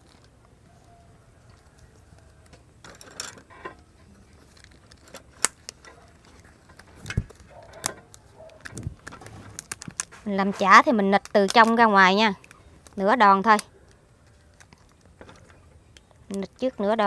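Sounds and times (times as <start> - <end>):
rubber bands stretching: 1.6 - 17.0
leaves crinkling: 3.9 - 15.6.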